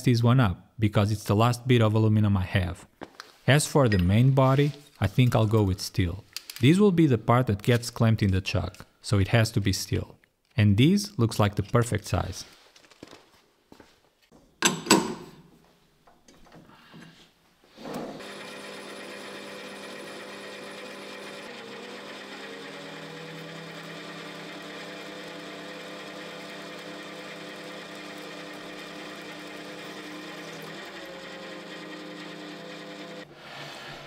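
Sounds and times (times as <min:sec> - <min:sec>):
metal lathe motor and gear whine: 0:18.2 - 0:33.2.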